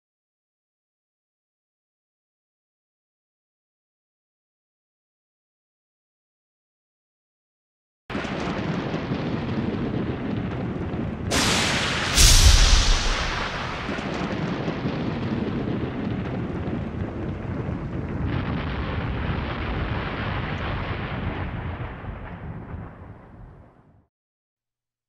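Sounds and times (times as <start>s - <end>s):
heavy impact boom: 11.3s - 14.3s
rumbling hissing tail: 11.3s - 14.3s.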